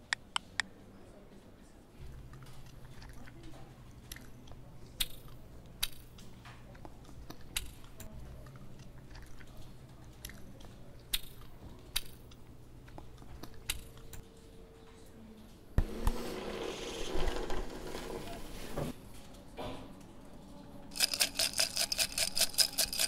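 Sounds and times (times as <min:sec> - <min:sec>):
low steady hum: 0:00.0 - 0:23.0
wet chewing: 0:02.0 - 0:04.6, 0:06.7 - 0:11.1.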